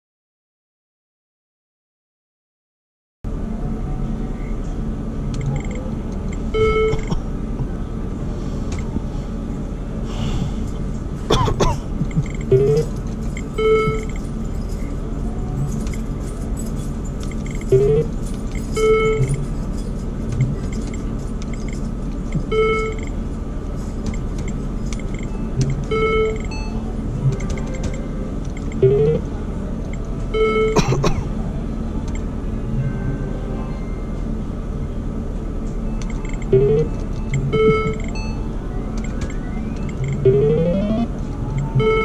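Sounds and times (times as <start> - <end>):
video poker machine beeps: 5.4 - 7.1, 12.0 - 14.2, 17.4 - 19.4, 20.7 - 23.2, 24.1 - 29.3, 29.9 - 30.8, 35.9 - 42.0
casino background din: 11.6 - 23.2, 36.2 - 38.2
rising electronic chirps: 28.8 - 29.2, 36.5 - 38.2, 39.5 - 41.1.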